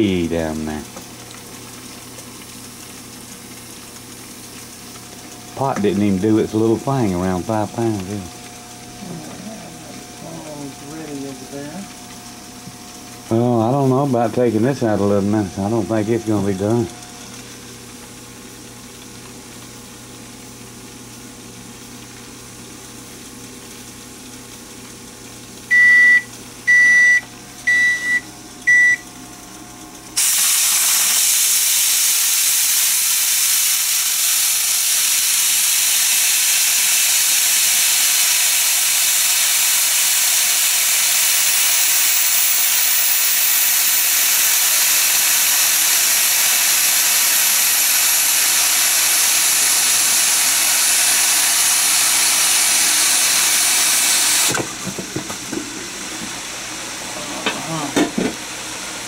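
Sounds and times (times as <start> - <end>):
pressure cooker venting steam: 0.0 - 59.0
timer beeps: 25.7 - 29.1.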